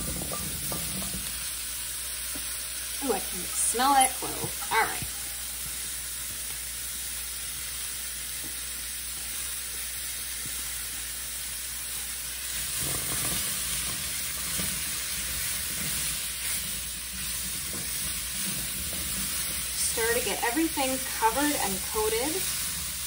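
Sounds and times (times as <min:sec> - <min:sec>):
vegetables sizzling in a skillet: 0:00.0 - 0:23.0
spatula scraping metal: 0:12.7 - 0:20.5.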